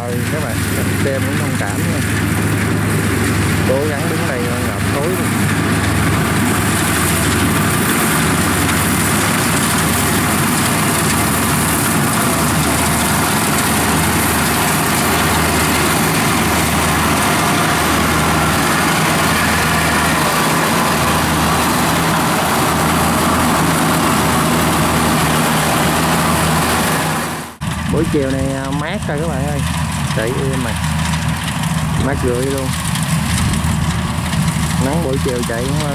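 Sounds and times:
cutter and threshing drum clatter: 0:00.0 - 0:35.9
diesel engine running: 0:00.0 - 0:35.9.

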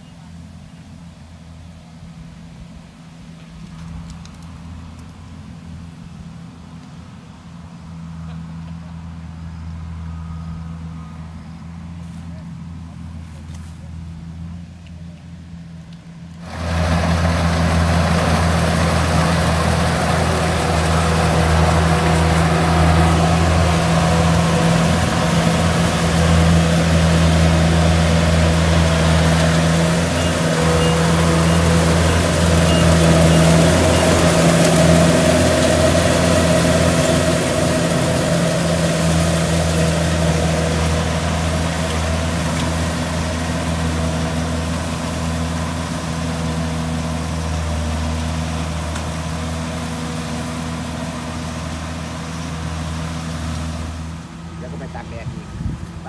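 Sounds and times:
combine harvester engine drone: 0:00.0 - 0:56.0
rush of machinery noise: 0:16.3 - 0:56.0.

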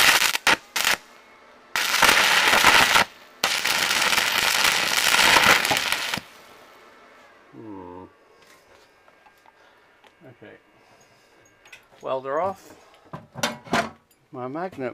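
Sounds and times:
welding arc crackling: 0:00.0 - 0:01.1, 0:01.7 - 0:06.6.

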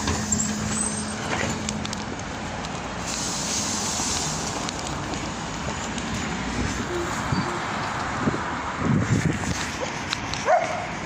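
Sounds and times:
trolleybus electrical hum: 0:00.0 - 0:08.2
street traffic noise: 0:00.0 - 0:11.0.

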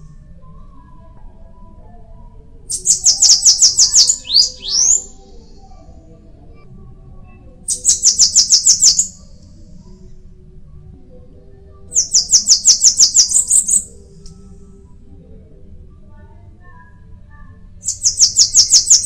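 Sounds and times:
bird singing rapid high notes: 0:02.7 - 0:05.2, 0:07.7 - 0:09.2, 0:12.0 - 0:13.8, 0:17.8 - 0:19.0.

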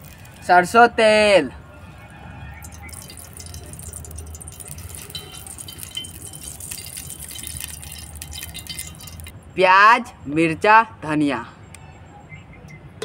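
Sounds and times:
oil trickling into metal pot: 0:00.0 - 0:00.6, 0:02.5 - 0:09.3.

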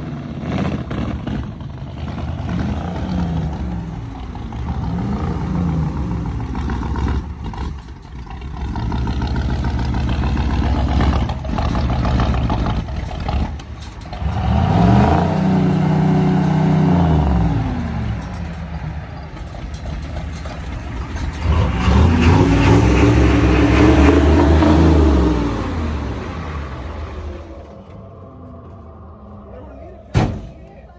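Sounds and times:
diesel engine revving: 0:00.0 - 0:30.5
diesel engine idling unevenly: 0:00.0 - 0:30.9.

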